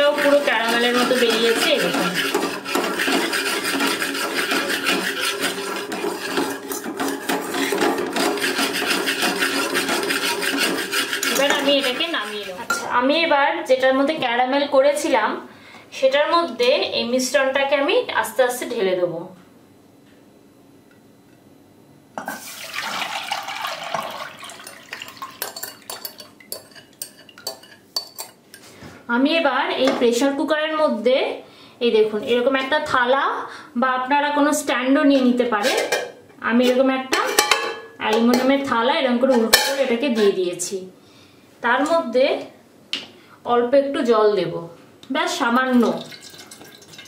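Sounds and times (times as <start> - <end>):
whisk scraping metal pot: 0.0 - 12.9, 24.6 - 28.4
liquid pouring and splashing: 22.4 - 26.3, 45.8 - 47.0
caramel bubbling: 45.8 - 47.0.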